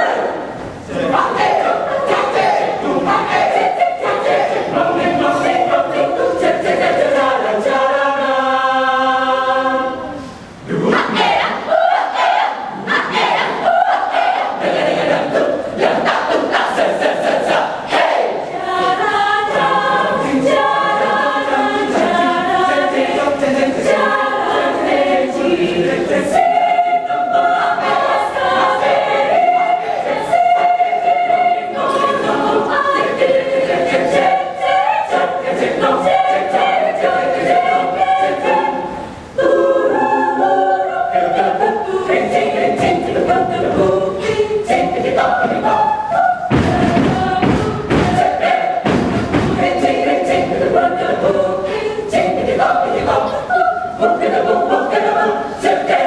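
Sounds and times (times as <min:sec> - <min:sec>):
mixed choir singing a cappella: 0:00.0 - 0:56.0
percussive thumps: 0:46.5 - 0:49.9.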